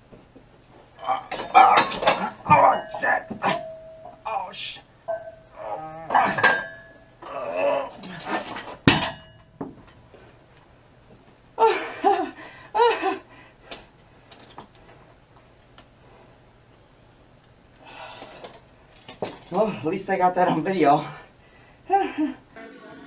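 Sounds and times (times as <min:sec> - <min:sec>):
weight plates clanking: 0:01.3 - 0:04.2, 0:05.1 - 0:07.1.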